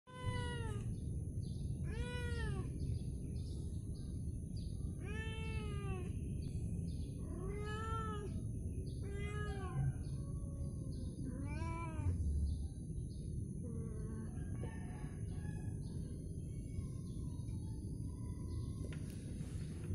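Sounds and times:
cat meowing: 0:00.1 - 0:01.0, 0:01.8 - 0:02.8, 0:05.0 - 0:06.2, 0:07.2 - 0:08.4, 0:09.0 - 0:10.2, 0:11.2 - 0:12.2.

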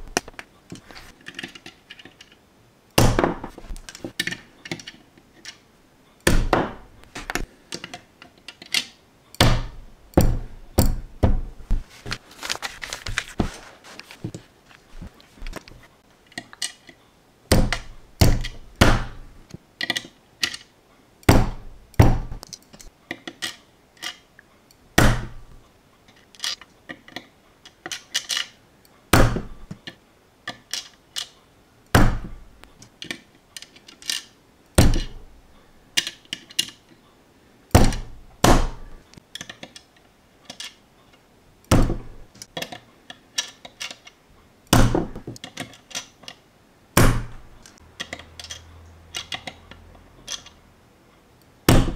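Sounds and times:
tweezers clicking on plastic bricks: 0:47.6 - 0:50.6.

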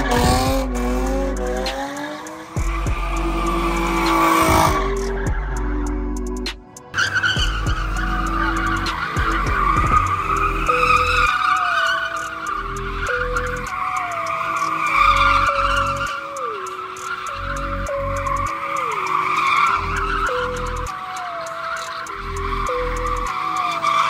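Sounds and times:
car engine revving: 0:00.0 - 0:24.0
music: 0:00.0 - 0:24.0
tyres squealing: 0:07.0 - 0:24.0.

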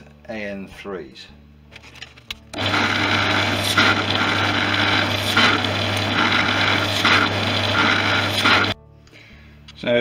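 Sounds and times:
drill bit cutting metal: 0:02.6 - 0:08.8
drill press motor running: 0:02.6 - 0:08.8.

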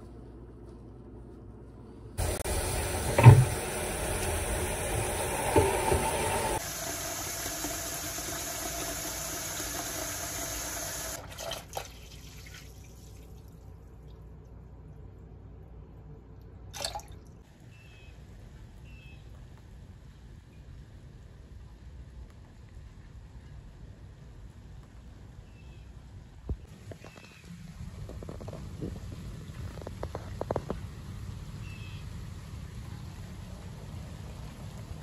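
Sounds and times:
tap water running into bucket: 0:02.2 - 0:13.4.

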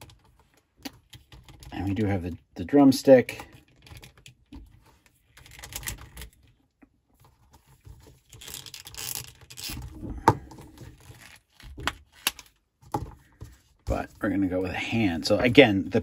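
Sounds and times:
small plastic clicks and rubbing: 0:00.0 - 0:01.8.

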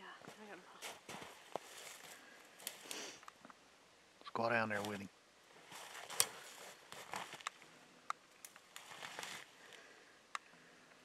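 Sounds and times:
rustling and shuffling in snow: 0:00.0 - 0:03.2, 0:04.7 - 0:07.7, 0:08.7 - 0:09.9.

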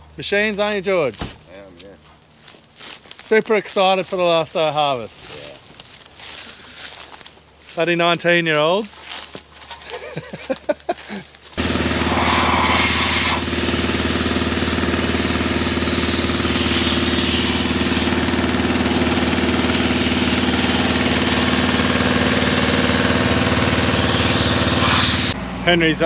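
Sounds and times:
engine running steadily: 0:11.1 - 0:26.0.

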